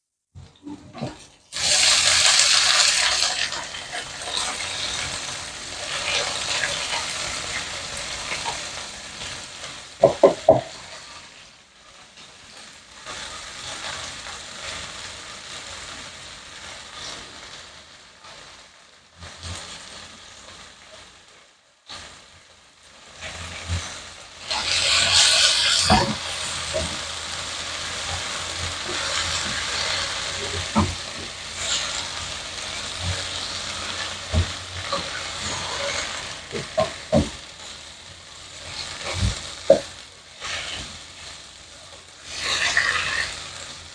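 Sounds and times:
vegetables sizzling in hot oil: 0.4s - 43.9s
wooden spatula knocking: 10.0s - 10.7s.

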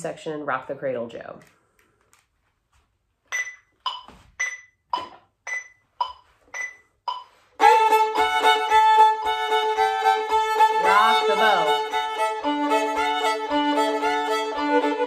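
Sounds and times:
metronome ticking: 3.3s - 13.5s
fiddle bowing two strings: 7.6s - 15.0s.

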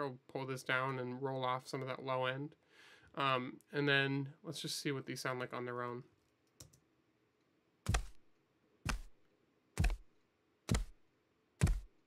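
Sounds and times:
barefoot footsteps: 7.9s - 8.2s, 8.9s - 9.2s, 9.8s - 10.1s, 10.7s - 11.0s, 11.6s - 12.0s.

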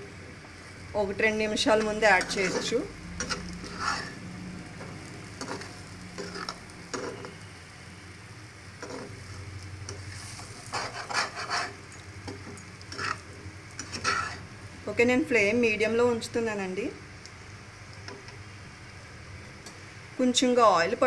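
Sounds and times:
low sizzle of frying: 0.0s - 21.0s
spatula scraping a frying pan: 1.7s - 4.2s, 5.3s - 7.5s, 8.8s - 9.3s, 10.0s - 12.0s, 12.8s - 14.5s.

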